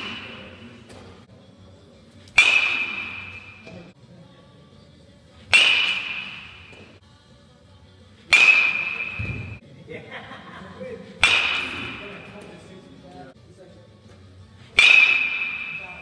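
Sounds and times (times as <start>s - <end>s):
baseball bat hitting ball: 0.0s - 1.2s, 2.3s - 3.9s, 5.5s - 7.0s, 8.3s - 9.6s, 11.2s - 12.5s, 14.7s - 16.0s.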